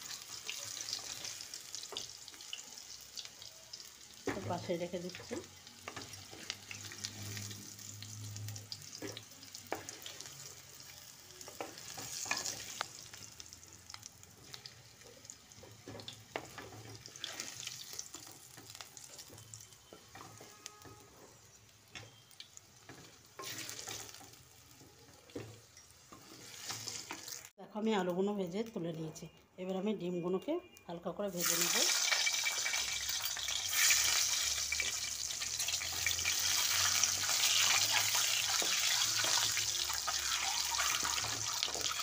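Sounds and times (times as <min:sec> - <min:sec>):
potatoes sizzling in hot oil: 0:00.0 - 0:27.5, 0:31.3 - 0:42.0
spatula scraping a pan: 0:15.6 - 0:22.2, 0:22.8 - 0:24.4, 0:25.3 - 0:27.4.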